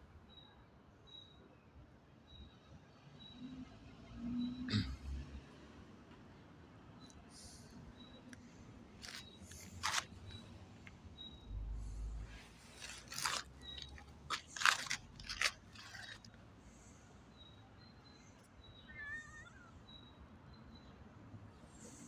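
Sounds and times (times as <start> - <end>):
footsteps crunching on leaves: 9.0 - 10.1, 12.6 - 16.2.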